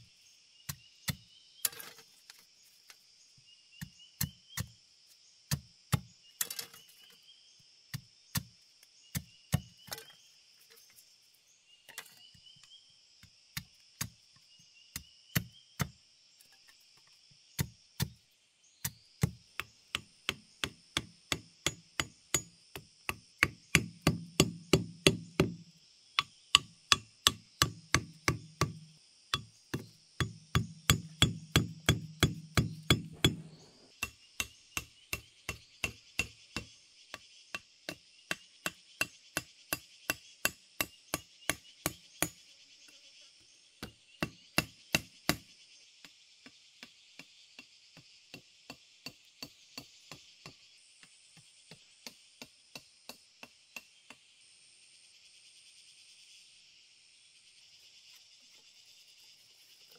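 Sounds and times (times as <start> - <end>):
insects droning: 0.0 - 59.9
hammer blows on stake: 29.4 - 33.8.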